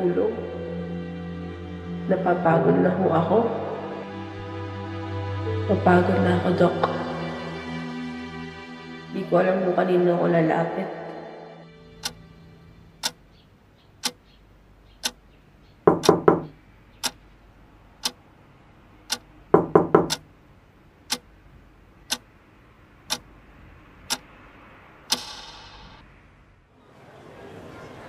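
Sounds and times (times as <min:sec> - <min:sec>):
clock ticking: 0:13.0 - 0:13.2, 0:14.0 - 0:14.3, 0:15.0 - 0:15.2, 0:15.9 - 0:17.2, 0:19.1 - 0:20.3, 0:21.1 - 0:21.3, 0:22.1 - 0:22.3, 0:23.1 - 0:23.3, 0:24.1 - 0:24.3, 0:25.0 - 0:26.0.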